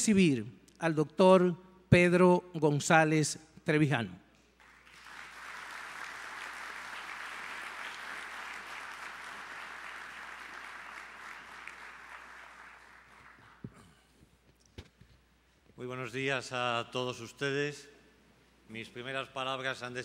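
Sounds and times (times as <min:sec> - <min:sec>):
audience applauding: 0:04.6 - 0:13.7.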